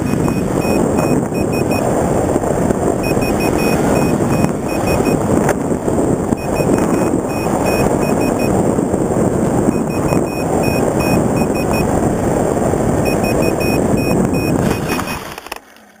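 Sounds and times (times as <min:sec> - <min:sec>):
loud wind rush: 0:00.0 - 0:15.4
electric motor and propeller: 0:00.0 - 0:16.0
short high electronic beeps: 0:03.0 - 0:05.2, 0:06.4 - 0:08.6, 0:09.7 - 0:11.9, 0:13.0 - 0:15.3.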